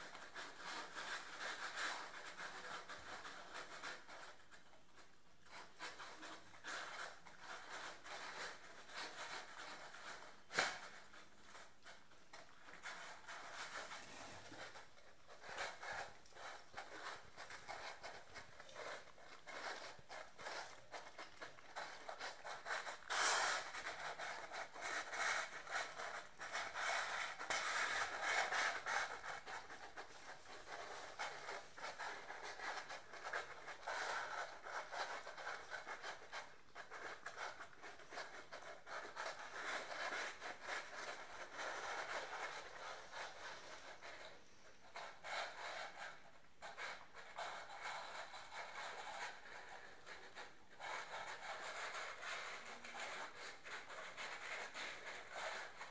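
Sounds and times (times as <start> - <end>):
puppies crunching dry kibble: 5.6 - 46.0.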